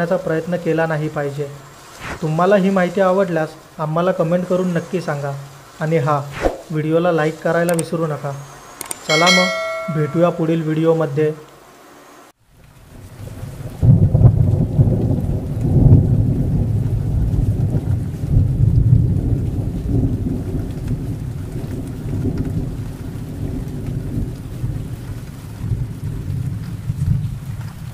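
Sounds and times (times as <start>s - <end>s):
steady rain: 0.0s - 27.9s
thunder rumbling: 12.8s - 27.9s.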